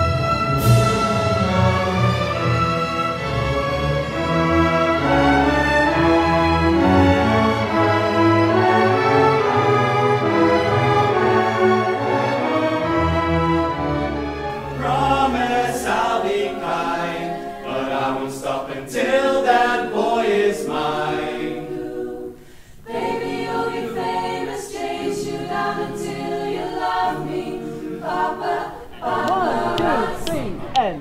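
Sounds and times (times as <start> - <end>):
vocal group singing a cappella: 14.5 - 30.9.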